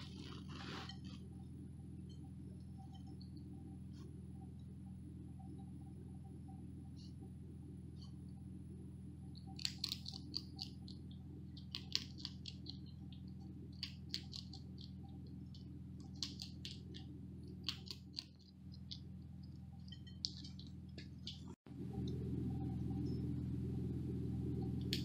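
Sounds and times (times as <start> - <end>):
steady low hum: 0.0 - 25.0
skunk chewing wet clicks: 9.4 - 21.6.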